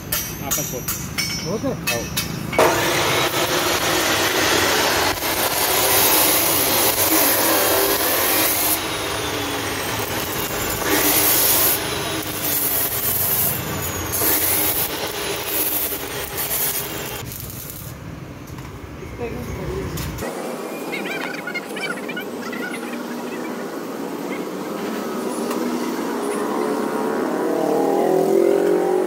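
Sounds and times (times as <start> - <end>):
chop saw grinding through metal: 1.9 - 17.3
saw motor running: 2.6 - 17.3.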